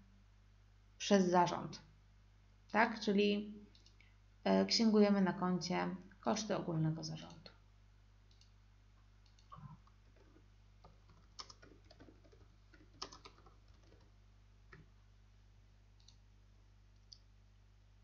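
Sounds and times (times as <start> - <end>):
keyboard typing: 9.3 - 14.1.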